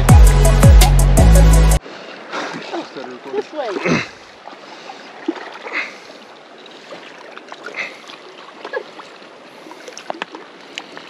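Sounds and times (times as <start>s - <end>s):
river water rushing: 1.8s - 11.0s
small splashes and clicks: 6.8s - 11.0s.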